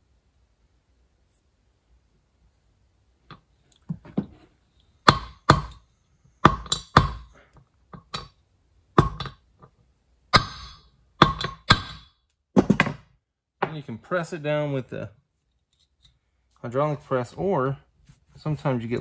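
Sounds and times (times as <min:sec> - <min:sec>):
hammer tapping on metal: 0:05.1 - 0:05.8, 0:06.4 - 0:07.3, 0:10.3 - 0:12.1.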